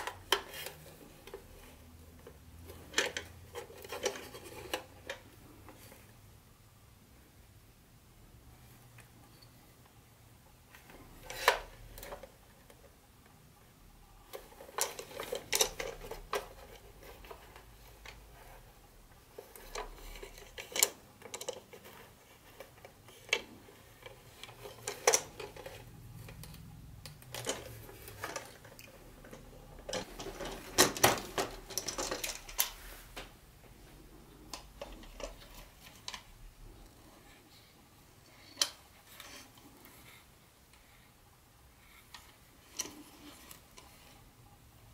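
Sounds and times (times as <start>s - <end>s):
plastic toy train cars clattering: 2.6s - 5.3s, 19.3s - 26.5s, 27.2s - 32.8s.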